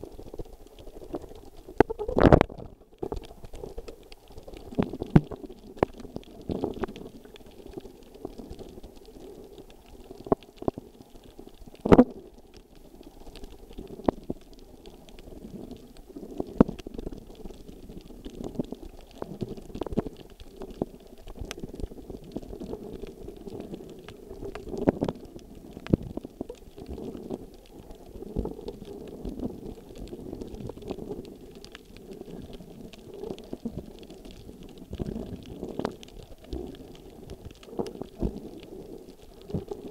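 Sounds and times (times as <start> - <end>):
underwater churning rumble: 14.9 - 39.9.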